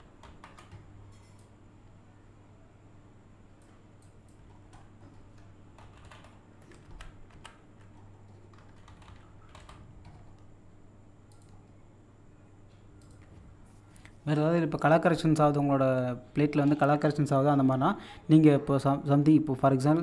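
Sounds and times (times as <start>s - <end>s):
keyboard and mouse clicks: 11.3s - 11.6s, 13.0s - 13.4s.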